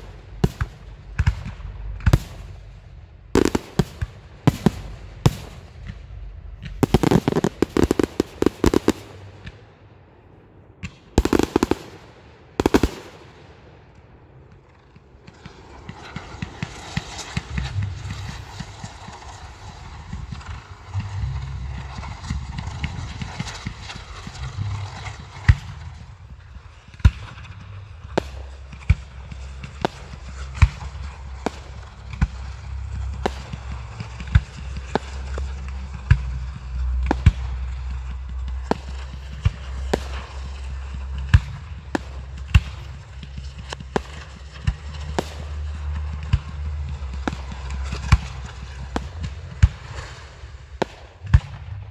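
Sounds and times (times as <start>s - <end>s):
firework fountain crackling hiss: 0.0s - 9.4s, 11.2s - 13.4s, 14.5s - 51.9s
steady low rumble: 0.0s - 51.9s
firework shells bursting: 3.4s - 9.6s, 11.0s - 13.4s, 14.4s - 26.6s.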